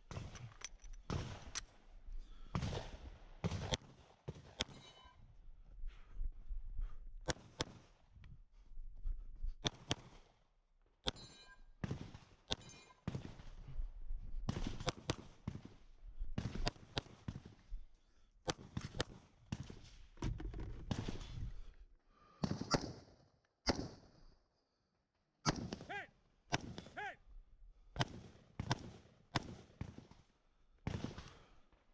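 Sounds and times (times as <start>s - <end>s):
rifle shots: 1.1s - 1.6s, 14.5s - 15.6s
pistol shots: 22.4s - 23.0s, 23.7s - 24.0s, 25.5s - 25.9s, 26.5s - 27.0s, 28.0s - 30.2s, 30.9s - 31.4s.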